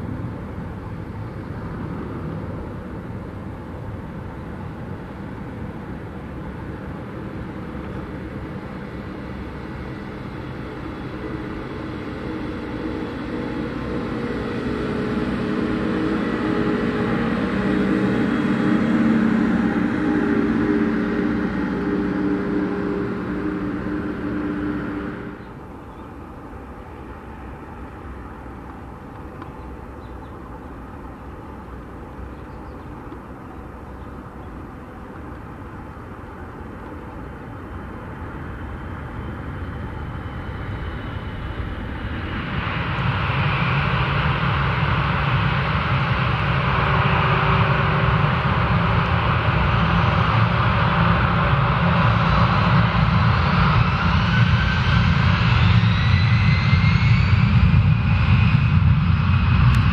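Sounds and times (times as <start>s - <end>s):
jet engines rumbling: 0.0s - 59.9s.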